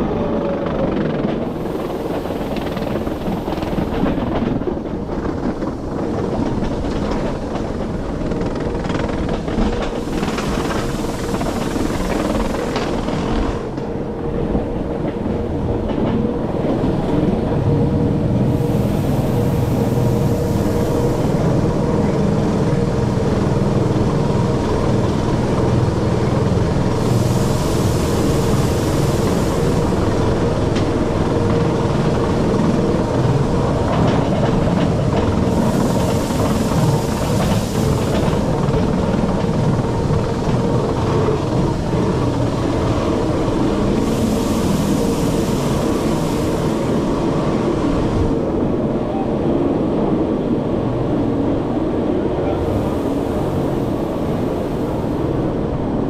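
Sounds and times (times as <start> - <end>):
rack train rumbling: 0.0 - 56.0
high hiss: 43.2 - 48.0.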